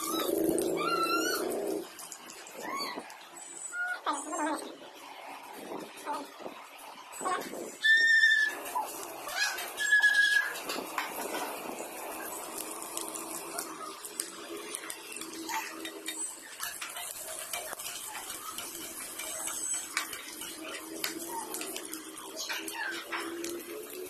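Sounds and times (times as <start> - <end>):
onions sizzling in oil: 7.8 - 24.0
spatula scraping and tapping pan: 14.1 - 23.7.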